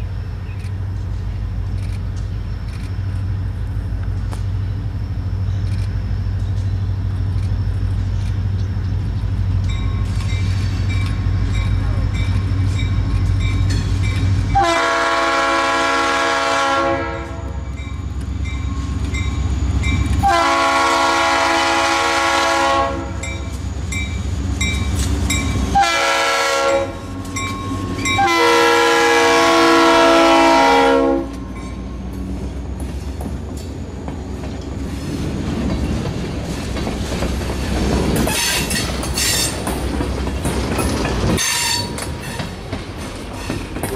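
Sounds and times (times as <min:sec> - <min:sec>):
train wheels clicking over rail joints: 0:00.0 - 0:14.6, 0:23.2 - 0:25.8, 0:26.8 - 0:28.3, 0:31.3 - 0:43.9
locomotive air horn: 0:14.5 - 0:17.6, 0:20.2 - 0:23.5, 0:25.7 - 0:27.1, 0:28.0 - 0:31.4, 0:41.4 - 0:42.5.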